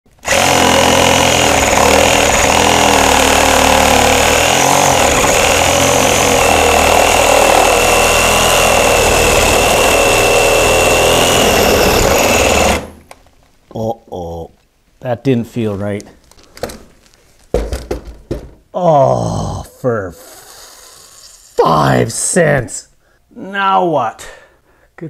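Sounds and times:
reciprocating saw cutting wood: 0:00.1 - 0:13.0.

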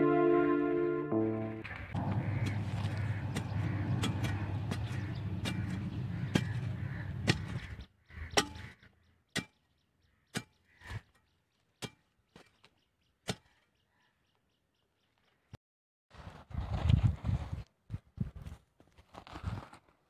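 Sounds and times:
steady low hum: 0:01.2 - 0:07.3
metal tool chopping hard soil: 0:02.0 - 0:07.6, 0:08.4 - 0:08.6.

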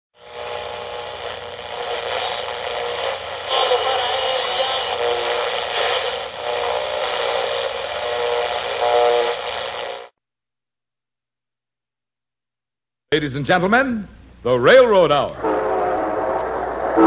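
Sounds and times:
radio static hiss: 0:00.2 - 0:10.1, 0:15.2 - 0:17.0
shifting radio tones: 0:00.2 - 0:10.1, 0:15.4 - 0:17.0.

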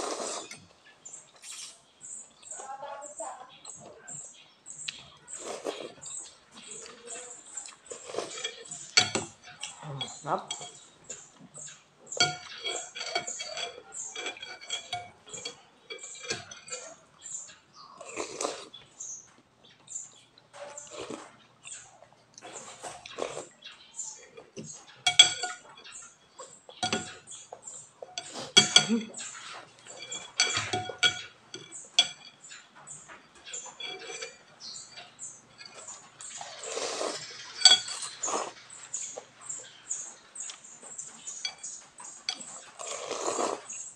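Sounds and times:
noodles slurped: 0:00.0 - 0:00.6, 0:18.0 - 0:18.7, 0:36.4 - 0:38.6, 0:42.8 - 0:43.8
cutlery clinking on glass bowl: 0:05.0 - 0:17.8, 0:20.5 - 0:43.9.

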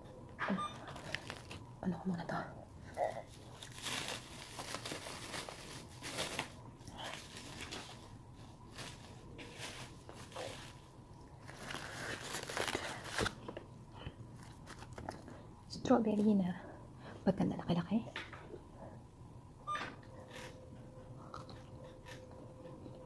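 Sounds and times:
cling wrap crinkling: 0:00.8 - 0:01.7, 0:03.2 - 0:13.4.

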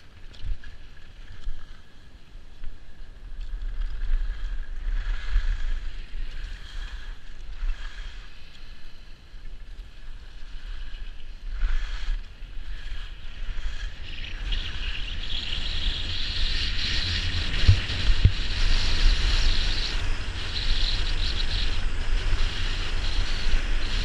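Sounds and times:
skis scraping packed snow: 0:00.0 - 0:24.0
wind buffeting microphone: 0:09.9 - 0:24.0.

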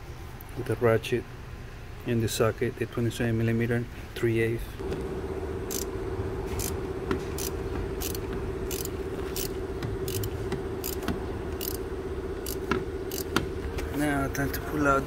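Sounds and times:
steady hum: 0:04.7 - 0:15.0
ratchet clicking: 0:05.7 - 0:05.9, 0:06.6 - 0:06.8, 0:07.4 - 0:11.8, 0:12.4 - 0:13.5.

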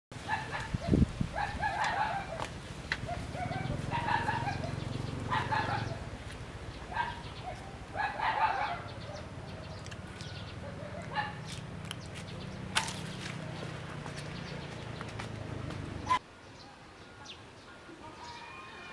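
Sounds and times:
chickens calling: 0:00.2 - 0:15.3.

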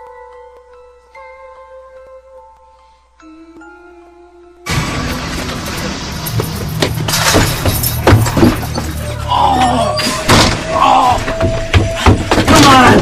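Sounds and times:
low drone film score: 0:04.6 - 0:13.0
sharp thuds and crashes: 0:04.7 - 0:09.0, 0:10.1 - 0:13.0.

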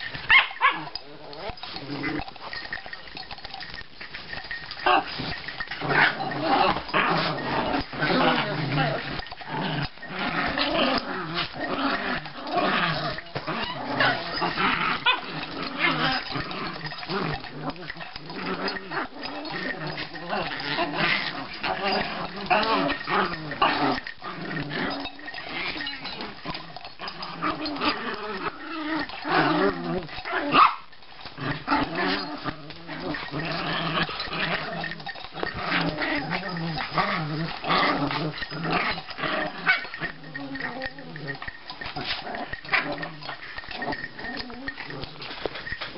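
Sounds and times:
small dogs growling: 0:00.0 - 0:45.9
dog yips: 0:00.3 - 0:00.9.

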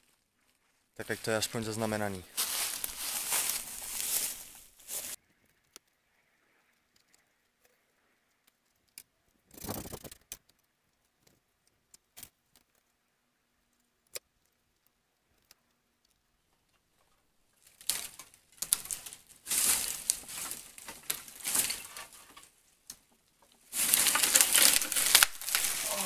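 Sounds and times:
footsteps through dry brush: 0:00.0 - 0:05.2, 0:17.6 - 0:22.6, 0:23.6 - 0:26.0
branches rustling: 0:00.0 - 0:05.8, 0:13.7 - 0:26.0
small clicks and snaps: 0:05.4 - 0:26.0.

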